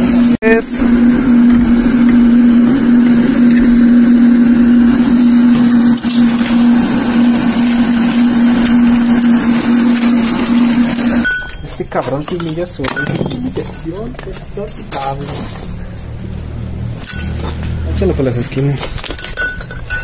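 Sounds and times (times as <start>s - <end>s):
electric blower motor humming: 0.0s - 11.7s.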